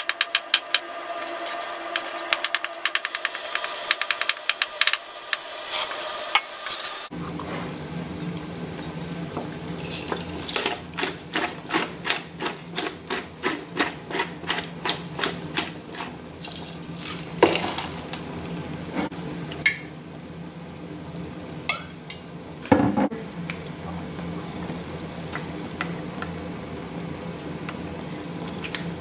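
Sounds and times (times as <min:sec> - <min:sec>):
pepper mill grinding: 0:00.0 - 0:07.0, 0:07.8 - 0:18.2.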